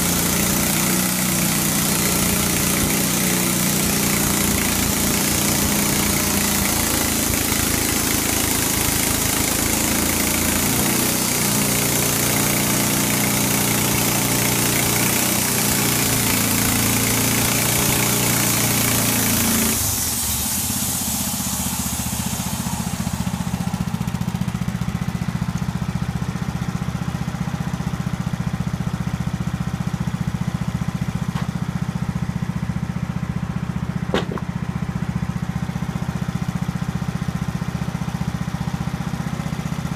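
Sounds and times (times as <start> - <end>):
saw blade cutting log: 0.0 - 20.4, 34.1 - 34.6
sawmill engine running: 0.0 - 39.9
brief knock: 31.3 - 31.6, 34.1 - 34.6.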